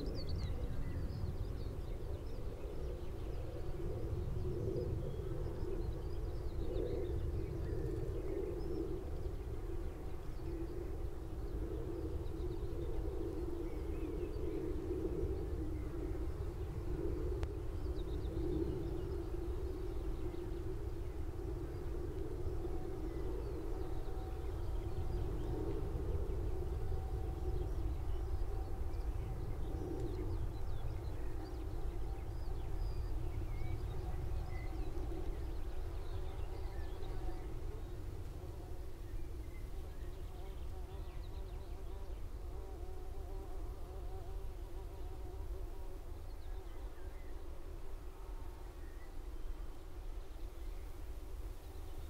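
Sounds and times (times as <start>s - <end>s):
skylarks singing trills: 0.0s - 44.4s
skylarks singing: 27.4s - 38.4s
faint insect buzz: 34.4s - 52.0s.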